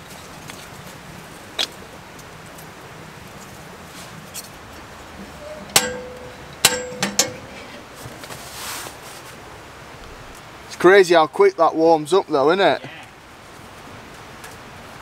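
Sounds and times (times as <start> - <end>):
soft hiss: 0.0 - 15.0
stove door metal clanks: 5.1 - 8.2.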